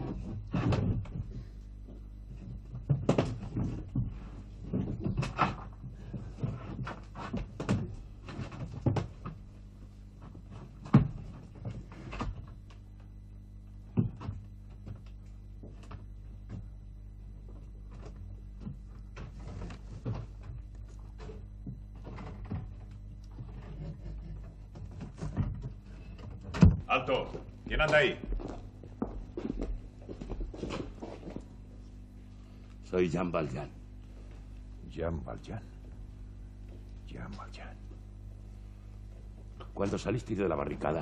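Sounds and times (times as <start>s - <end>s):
low electrical hum: 0.0s - 41.0s
scuffing footsteps: 26.8s - 32.1s.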